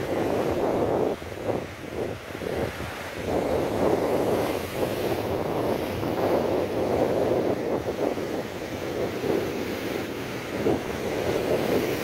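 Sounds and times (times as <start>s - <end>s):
surf breaking against seawall: 0.0s - 12.0s
wind buffeting microphone: 0.0s - 12.0s.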